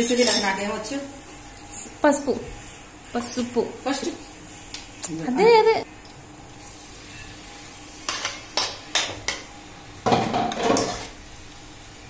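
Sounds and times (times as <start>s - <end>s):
kitchenware clinking against pan: 0.0s - 0.6s, 10.1s - 11.1s.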